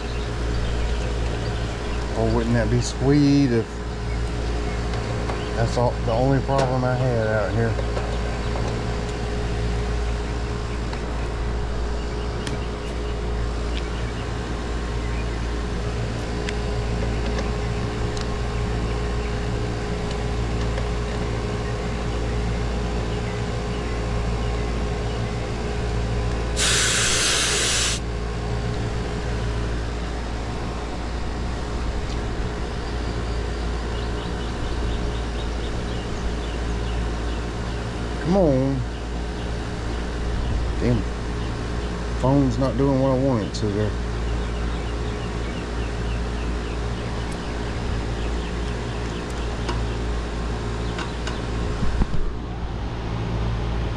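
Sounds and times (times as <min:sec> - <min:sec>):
compressor humming: 0:00.0 - 0:53.9
sharp refrigerant hiss: 0:26.5 - 0:28.1.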